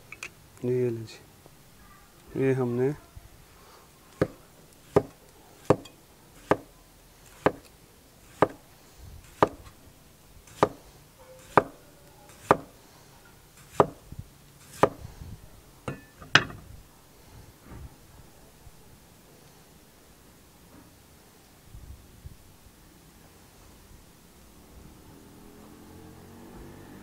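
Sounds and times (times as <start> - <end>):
knife slicing on wooden board: 4.2 - 6.7, 7.3 - 7.7, 8.3 - 8.6, 9.3 - 9.7, 10.5 - 10.8, 11.4 - 12.8, 13.6 - 14.0, 14.6 - 15.0.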